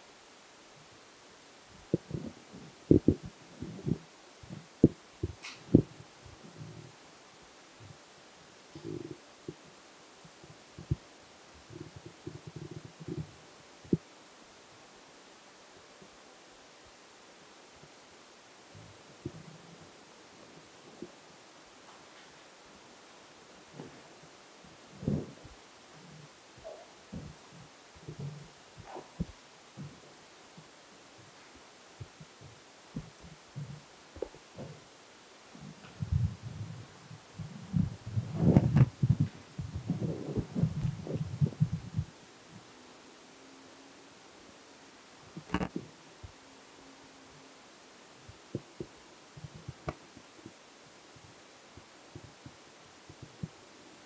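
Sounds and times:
faint hiss and hum: 0.0 - 54.0
microphone handling thumps: 1.9 - 6.0, 25.0 - 25.6, 26.2 - 27.4, 35.6 - 42.1, 45.4 - 45.9.

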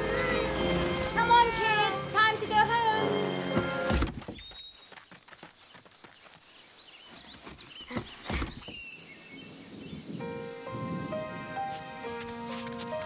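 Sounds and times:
small birds chirping: 4.2 - 10.6
gentle music with held notes: 10.2 - 13.0
soft footsteps: 11.7 - 13.0.

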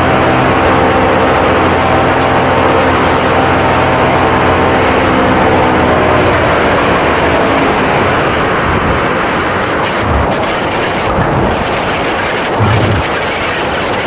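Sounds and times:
paramotor engine and propeller: 0.0 - 14.0
rush of air: 12.6 - 13.2.

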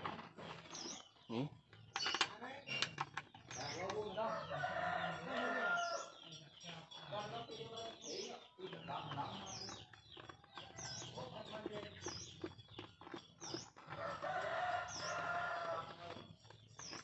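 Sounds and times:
bird chirping: 0.4 - 17.0
rooster crowing: 4.2 - 6.1, 13.9 - 16.0.

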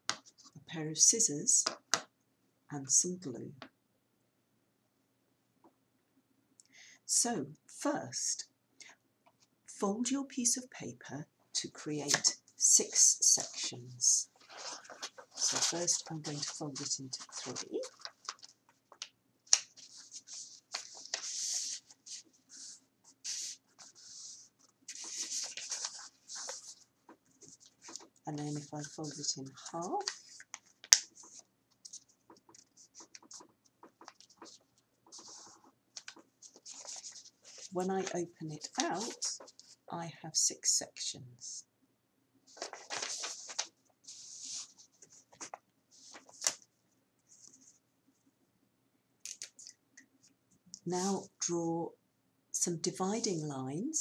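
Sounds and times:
paper rustling and crinkling: 14.3 - 39.8, 42.5 - 46.7.

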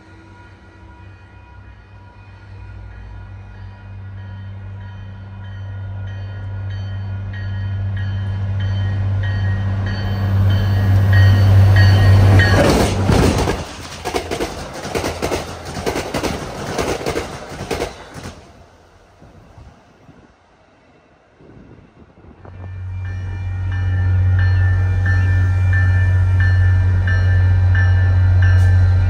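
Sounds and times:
diesel locomotive engine drone: 0.0 - 29.0
train bell ringing: 2.9 - 12.9, 22.8 - 29.0
train wheels clicking over rail joints: 10.5 - 18.6.

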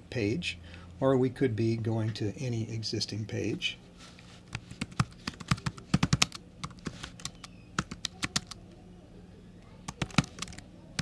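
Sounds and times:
typing on computer keyboard: 4.6 - 8.6, 9.9 - 11.0.

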